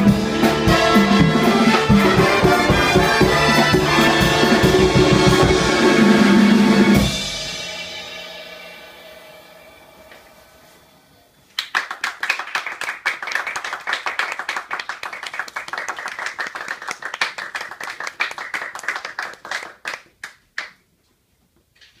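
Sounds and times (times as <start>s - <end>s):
small group applauding: 11.5s - 21.0s.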